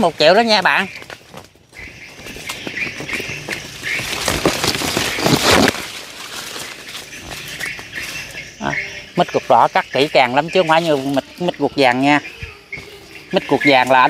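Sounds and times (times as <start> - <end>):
rustling and scraping: 0.0 - 8.6
birds chirping: 0.0 - 14.0
insects droning: 0.0 - 14.0.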